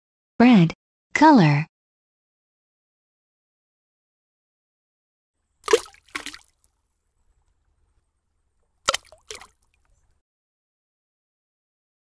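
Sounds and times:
cartoon liquid splashes: 0:05.6 - 0:06.6, 0:08.9 - 0:09.7.

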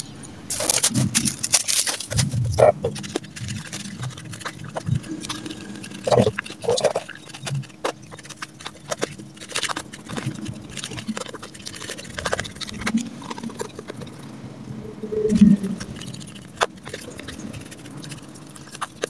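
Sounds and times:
hands kneading squishy dough: 0:00.5 - 0:14.1.

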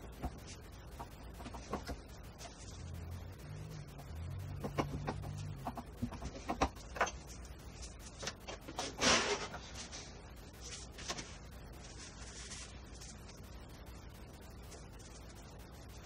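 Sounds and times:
low hum: 0:00.0 - 0:16.0.

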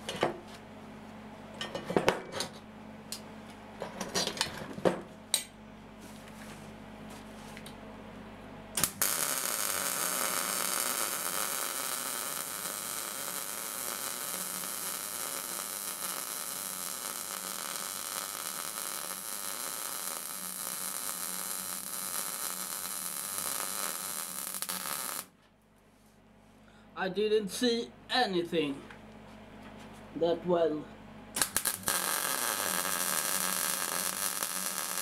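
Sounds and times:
welding arc crack: 0:08.8 - 0:25.3, 0:31.4 - 0:35.0
welding crackling hiss: 0:08.8 - 0:25.3, 0:31.4 - 0:35.0.

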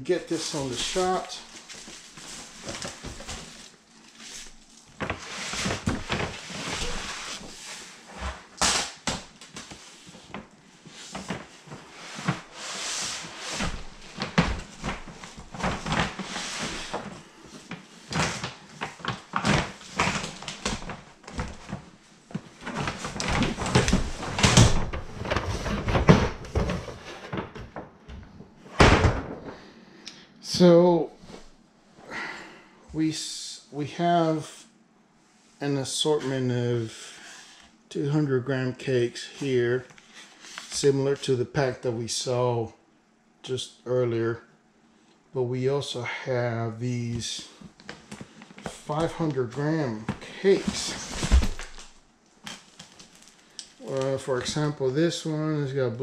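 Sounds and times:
cardboard rustling and scraping: 0:00.3 - 0:27.8, 0:47.6 - 0:54.7.

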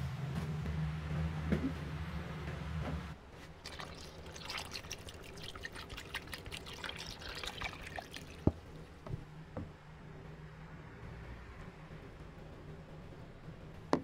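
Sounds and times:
low steady hum: 0:00.0 - 0:14.0
water pouring into plastic tub: 0:03.6 - 0:08.7.

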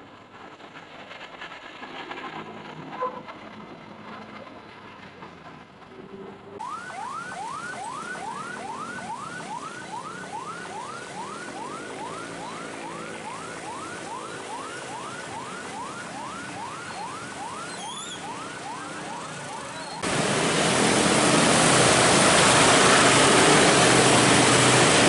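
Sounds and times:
ambulance siren yelping: 0:06.6 - 0:20.2.

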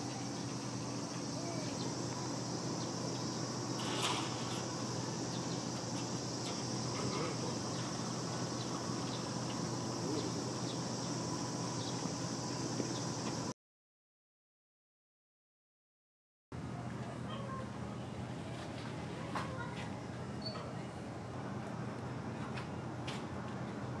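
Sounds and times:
high-pitched insect chorus: 0:00.0 - 0:13.5.

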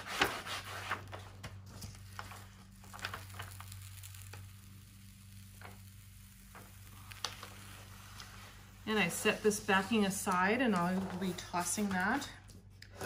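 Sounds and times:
paper rustling and crackling: 0:00.0 - 0:04.5
steady low hum: 0:00.0 - 0:13.0.

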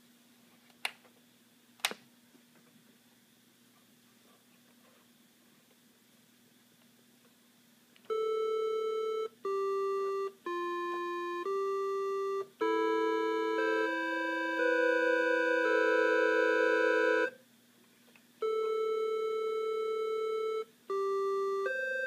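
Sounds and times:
electronic keyboard notes: 0:08.1 - 0:17.4, 0:18.4 - 0:22.0.

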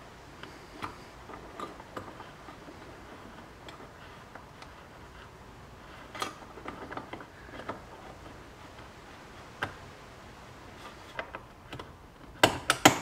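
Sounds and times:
faint clicks and ticks: 0:00.3 - 0:10.0.

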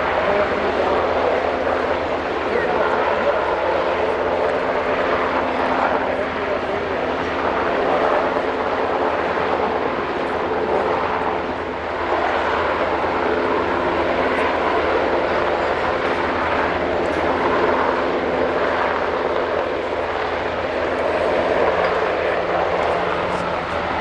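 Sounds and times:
helicopter rotor and turbine drone: 0:00.0 - 0:24.0.

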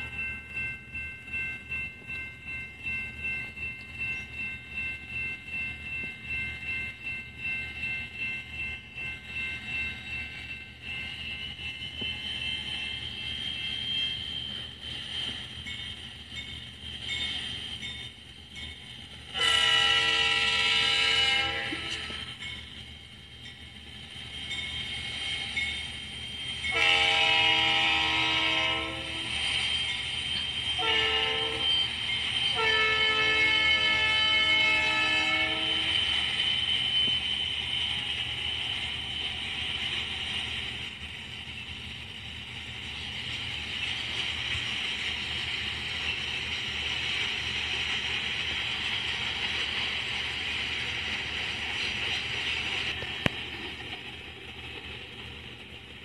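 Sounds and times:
train wheels on rails: 0:00.0 - 0:56.0
locomotive air horn blasts: 0:19.4 - 0:22.1, 0:26.7 - 0:29.3, 0:30.8 - 0:31.7, 0:32.6 - 0:35.9.

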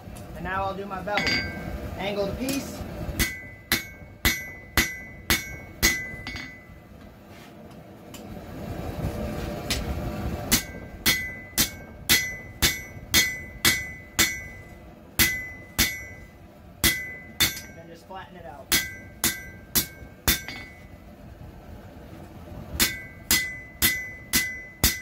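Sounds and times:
hammer blows on steel anvil: 0:01.1 - 0:01.8, 0:10.5 - 0:18.1, 0:22.8 - 0:25.0.

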